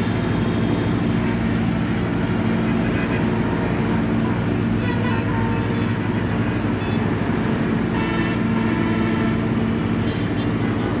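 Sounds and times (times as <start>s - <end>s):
city road traffic: 0.0s - 11.0s
low mechanical drone: 0.0s - 11.0s
vehicle horn: 4.8s - 5.8s, 7.9s - 10.2s.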